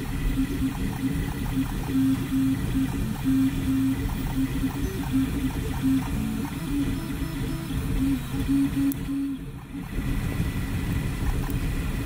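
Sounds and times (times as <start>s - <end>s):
cooling fans: 0.0s - 12.0s
stepper motors whining: 0.0s - 12.0s.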